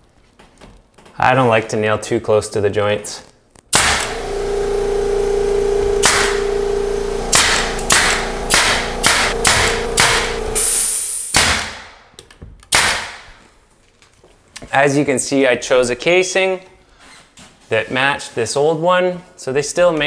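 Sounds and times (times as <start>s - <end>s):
nail gun firing into wood: 3.7s - 4.2s, 6.0s - 6.4s, 7.3s - 10.7s, 11.3s - 12.0s, 12.7s - 13.4s
loud steady machine hum: 3.8s - 11.0s.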